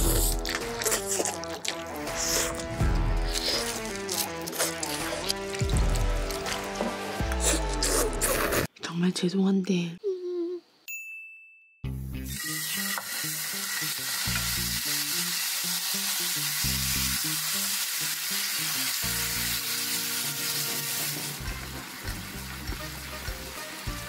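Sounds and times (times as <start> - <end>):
meat sizzling in a frying pan: 12.3 - 24.0.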